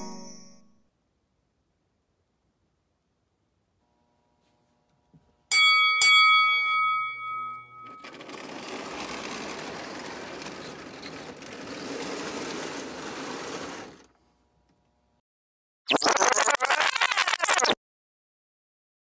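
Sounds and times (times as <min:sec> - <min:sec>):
bell dings: 0:00.0 - 0:00.7, 0:05.5 - 0:08.3
toy train rumbling on tin track: 0:07.7 - 0:14.1.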